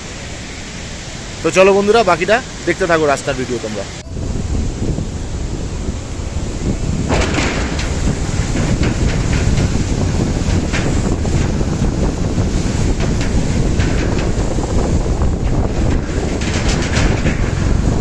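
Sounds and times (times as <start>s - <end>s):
motorcycle rumble: 3.9s - 18.0s
wind noise on microphone: 3.9s - 18.0s
short rattles: 5.0s - 18.0s.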